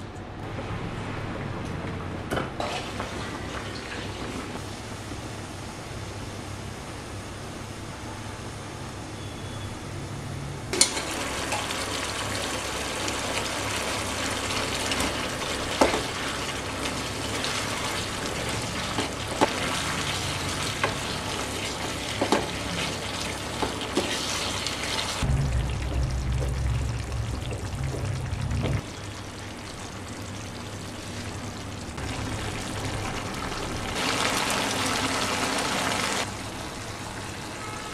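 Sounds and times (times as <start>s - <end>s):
pot boiling and bubbling: 10.7s - 36.3s.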